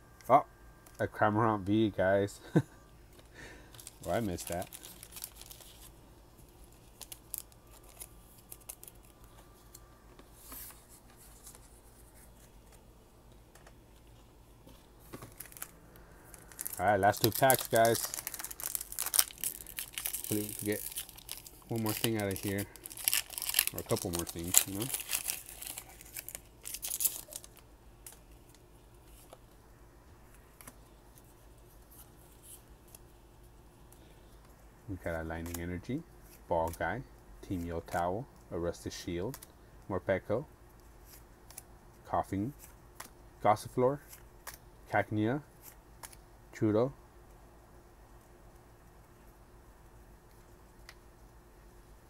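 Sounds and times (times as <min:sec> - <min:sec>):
foil wrapper crinkling: 0:03.7 - 0:09.8, 0:14.0 - 0:29.4
plastic card sleeve rustling: 0:03.7 - 0:29.6, 0:45.6 - 0:46.2.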